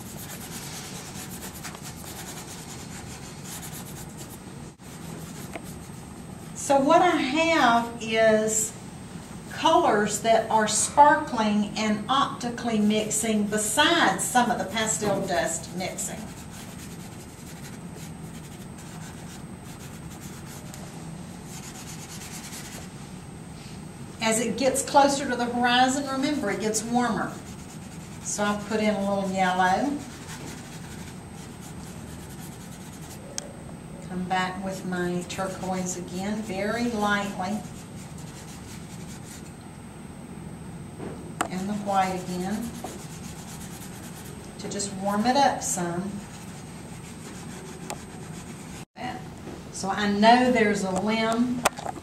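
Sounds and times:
pastel stick scratching on paper: 0:00.0 - 0:06.0, 0:14.9 - 0:20.8, 0:21.5 - 0:22.9, 0:27.2 - 0:33.2, 0:35.4 - 0:39.5, 0:42.0 - 0:44.4, 0:46.2 - 0:48.9.

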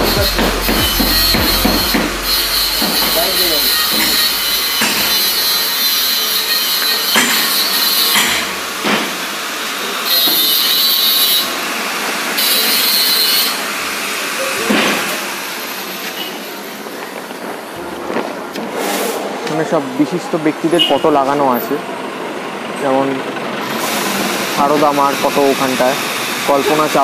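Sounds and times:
sharp knocks: 0:00.0 - 0:05.4
power tool rasping: 0:00.0 - 0:09.3, 0:23.6 - 0:27.0
loud hissing: 0:00.0 - 0:16.8, 0:22.9 - 0:27.0.

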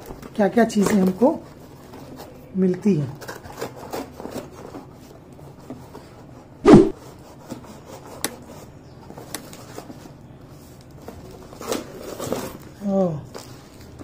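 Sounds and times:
cardboard and tape crackling: 0:00.0 - 0:02.3, 0:03.0 - 0:05.1, 0:09.1 - 0:14.0
cardboard box tearing open: 0:11.5 - 0:12.6.

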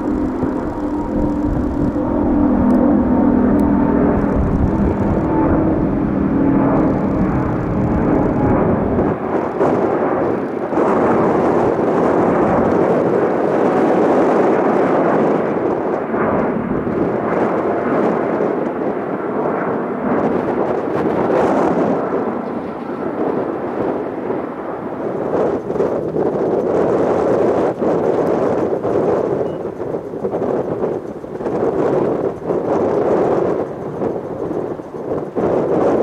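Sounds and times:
deep rumble: 0:00.0 - 0:29.1
jet roar passing overhead: 0:00.0 - 0:36.0
steady humming tones: 0:00.0 - 0:36.0.

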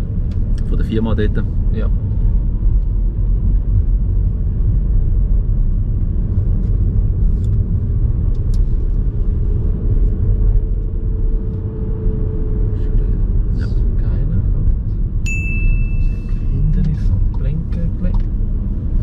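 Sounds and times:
car engine and tyre rumble: 0:00.0 - 0:19.0.

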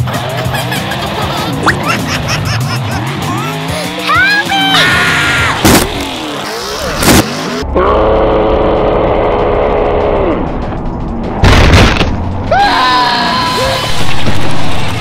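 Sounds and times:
music: 0:00.0 - 0:15.0
cars crashing: 0:05.3 - 0:07.6.

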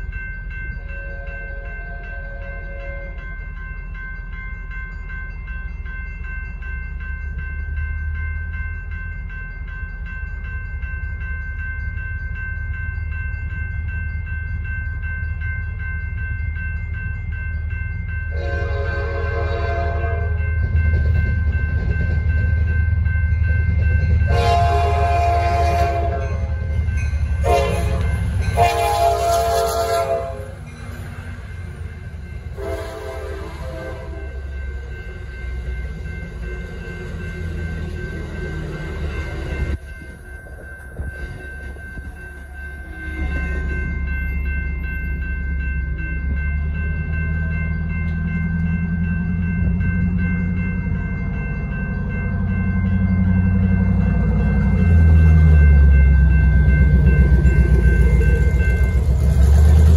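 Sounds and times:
railroad crossing bell ringing: 0:00.0 - 0:59.9
train rumble: 0:00.0 - 0:59.9
train horn blasts: 0:18.3 - 0:20.5, 0:24.3 - 0:26.7, 0:27.4 - 0:30.7, 0:32.5 - 0:34.4.

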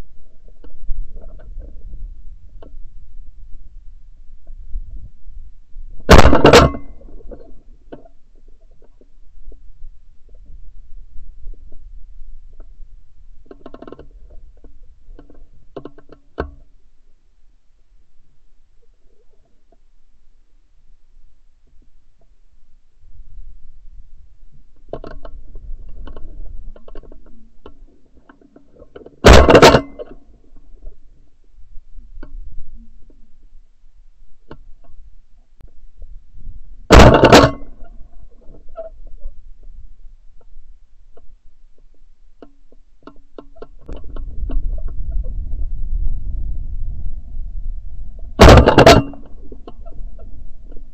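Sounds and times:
low wind rumble on microphone: 0:00.0 - 0:28.8, 0:29.9 - 0:50.9
clicks and knocks: 0:06.1 - 0:08.1, 0:24.9 - 0:30.2, 0:36.9 - 0:38.9, 0:48.4 - 0:50.8.

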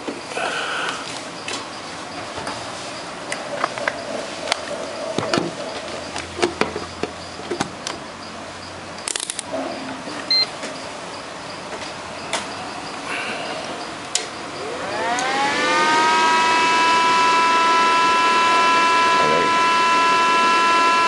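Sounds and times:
short high beep: 0:10.3 - 0:10.5.

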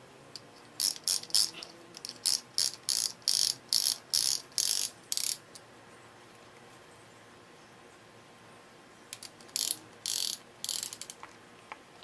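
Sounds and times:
ratcheting rasps: 0:00.8 - 0:05.4, 0:09.2 - 0:11.3.

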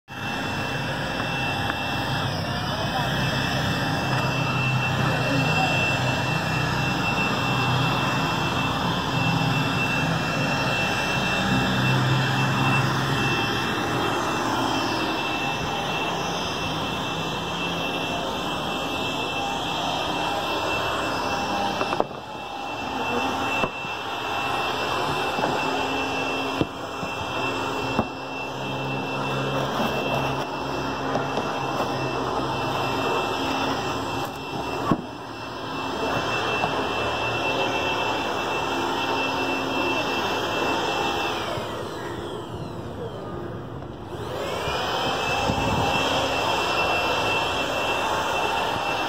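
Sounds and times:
jet aircraft passing overhead: 0:00.1 - 0:49.0
outdoor background noise: 0:00.1 - 0:49.0
thin high steady tone: 0:00.4 - 0:41.7.

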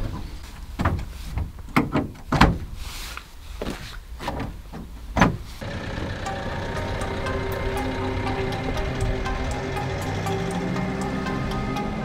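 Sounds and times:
gear and hatch clunking: 0:00.0 - 0:02.8, 0:04.2 - 0:10.6.

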